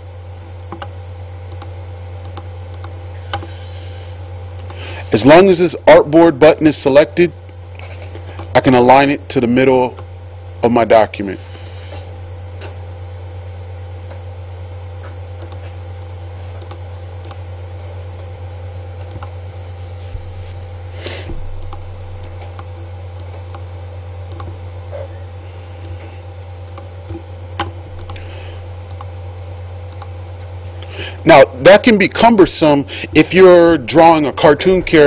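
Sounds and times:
low electrical hum: 0.0s - 35.0s.

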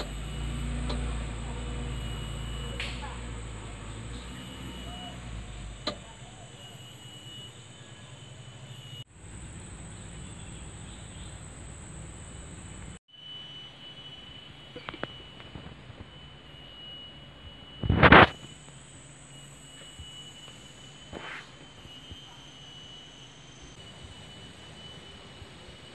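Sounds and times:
diesel engine low hum: 0.0s - 6.6s, 9.1s - 13.0s.

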